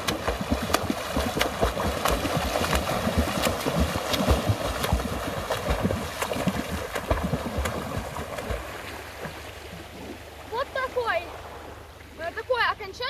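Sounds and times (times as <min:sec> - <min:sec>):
arms slapping the water: 0:00.0 - 0:09.7
water splashing from swimming strokes: 0:00.0 - 0:12.6.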